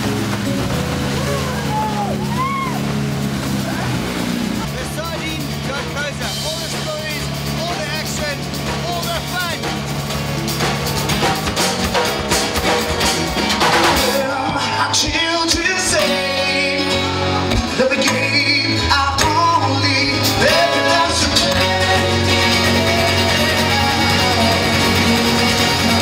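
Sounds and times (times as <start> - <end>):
strummed acoustic guitars: 0.0 - 26.0
man singing into a microphone: 14.0 - 26.0.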